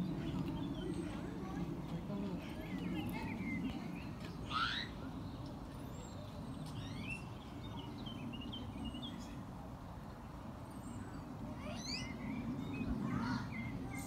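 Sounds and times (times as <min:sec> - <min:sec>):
low background murmur: 0:00.0 - 0:14.0
monkeys chirping high-pitched: 0:04.4 - 0:05.0, 0:11.6 - 0:12.6.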